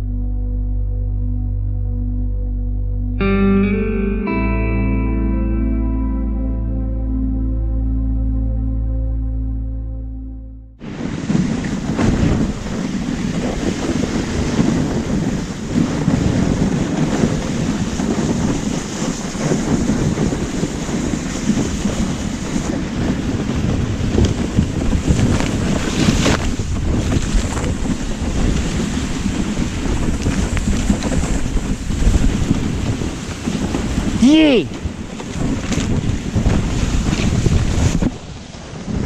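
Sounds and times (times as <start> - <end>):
sled sliding through snow: 10.8 - 39.0
wind buffeting microphone: 10.8 - 39.0.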